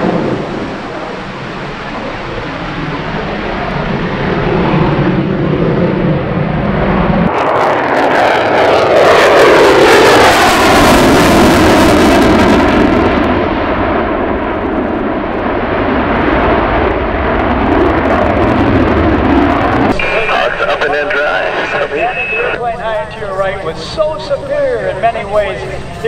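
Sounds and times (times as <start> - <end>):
fighter jet afterburner roar: 0.0 - 22.6.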